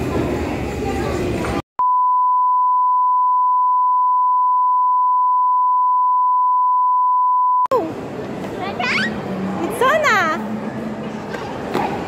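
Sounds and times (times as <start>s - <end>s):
steady test tone beep: 1.8s - 7.7s.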